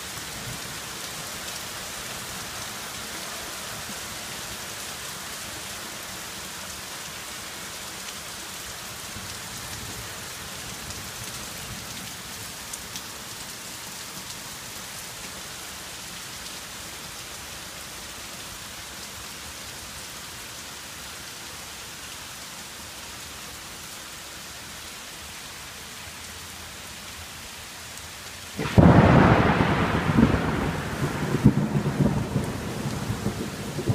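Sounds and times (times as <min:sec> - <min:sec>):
heavy rain: 0:00.0 - 0:33.9
thunder clap: 0:28.6 - 0:33.9.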